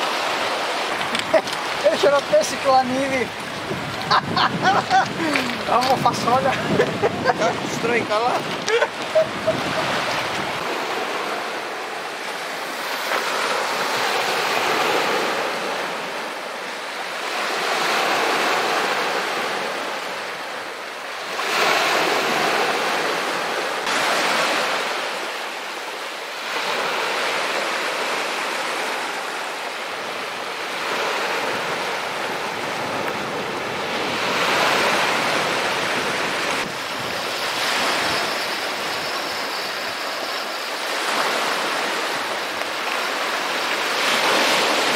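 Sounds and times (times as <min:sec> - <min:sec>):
waves breaking on stony shore: 0:00.0 - 0:44.9.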